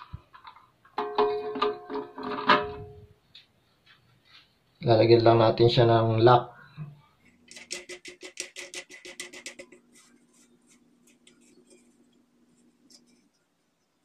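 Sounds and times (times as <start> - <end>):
plastic nut clicking and scraping: 7.5 - 10.1.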